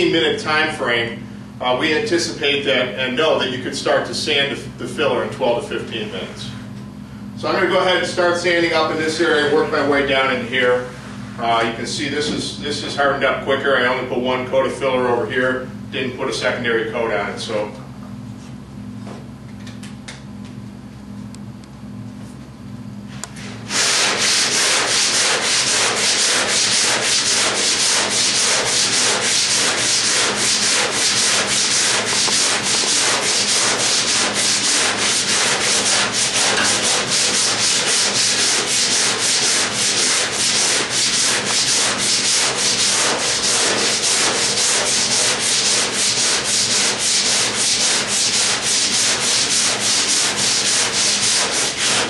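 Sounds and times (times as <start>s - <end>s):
sanding block strokes on filler: 23.4s - 52.0s.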